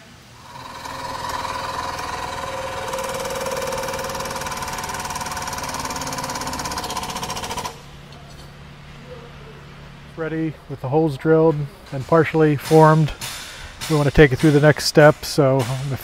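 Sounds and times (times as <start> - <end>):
hydraulic press whining and rattling: 0.2 - 9.0.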